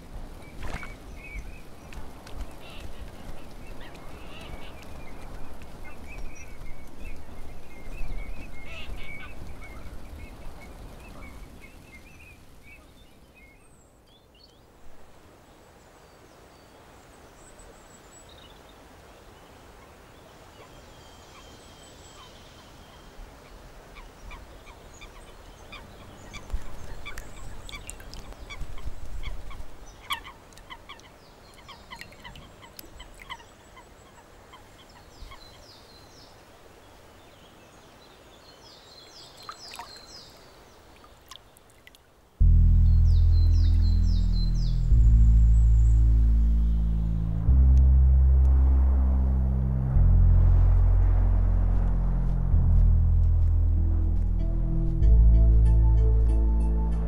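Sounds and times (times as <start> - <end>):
bird chirps and ticks: 0.4 - 12.2, 25.7 - 33.5
low rumbles: 42.4 - 57.0.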